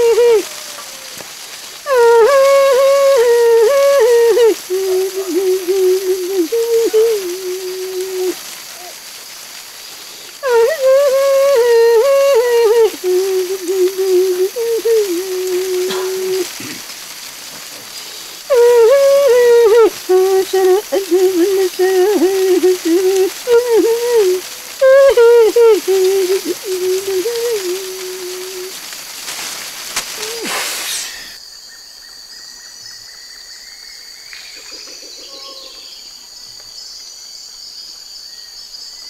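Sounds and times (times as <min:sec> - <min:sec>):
person singing a chant: 0:00.0 - 0:01.2, 0:01.8 - 0:08.4, 0:10.4 - 0:16.8, 0:18.5 - 0:28.8
faint steady hiss: 0:00.0 - 0:39.0.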